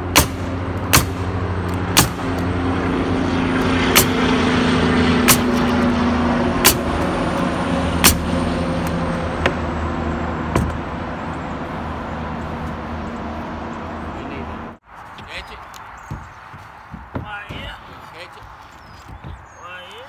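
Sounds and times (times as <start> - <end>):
truck engine running: 0.0 - 14.8
nail gun firing: 0.1 - 1.3, 1.9 - 2.3, 5.2 - 5.7, 6.6 - 6.9.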